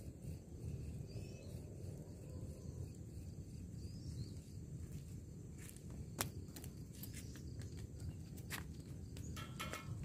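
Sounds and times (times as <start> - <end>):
faint bird chirps: 0.0 - 4.7.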